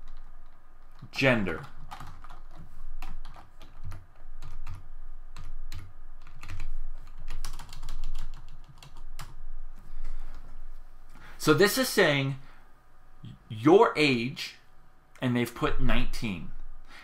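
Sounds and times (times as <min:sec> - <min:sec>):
computer keyboard typing: 0:00.0 - 0:09.4.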